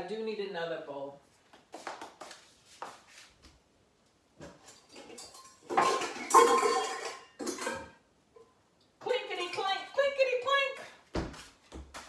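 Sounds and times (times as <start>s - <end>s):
metal bowls knocking: 5.0s - 8.0s.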